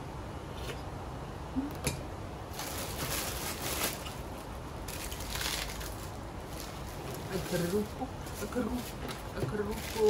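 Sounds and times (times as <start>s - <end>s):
packaging crackling and rustling: 2.5s - 10.0s.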